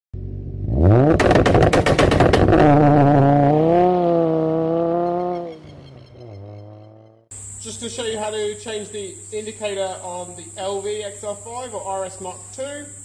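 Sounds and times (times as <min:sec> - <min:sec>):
car engine revving: 0:00.2 - 0:07.3
exhaust pops and bangs: 0:01.0 - 0:04.0.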